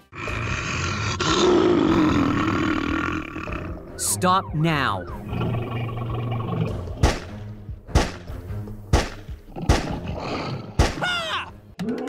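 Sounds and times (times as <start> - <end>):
background music: 0.0 - 12.0
sharp bangs: 7.0 - 10.0.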